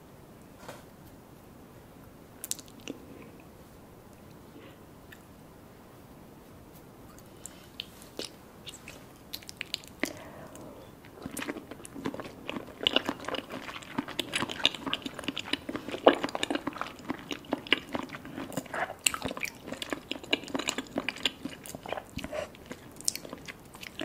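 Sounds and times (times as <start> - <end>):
wet chewing sounds: 7.2 - 24.0.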